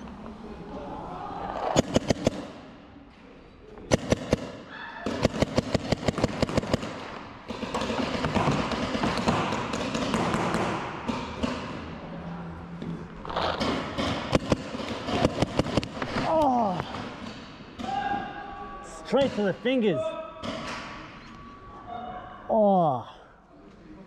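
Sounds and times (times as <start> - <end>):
paintball markers firing: 1.7 - 2.6, 3.9 - 11.8, 13.4 - 16.5.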